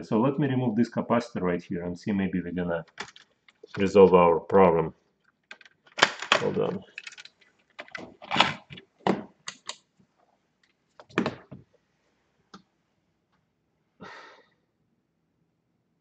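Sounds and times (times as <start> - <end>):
objects knocking and clicking: 2.8 - 3.9, 5.3 - 9.8, 11.0 - 11.6.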